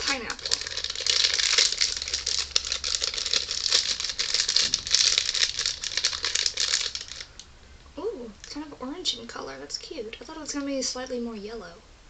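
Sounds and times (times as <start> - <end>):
candy wrapper crinkling: 0.0 - 7.4.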